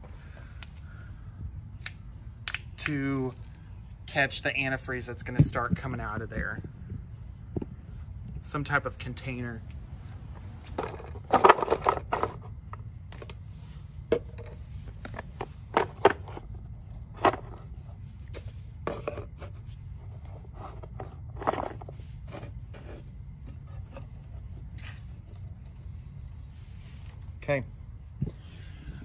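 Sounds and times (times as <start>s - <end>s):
steady low hum: 0.0s - 29.0s
plastic blocks knocking on concrete: 10.7s - 12.5s.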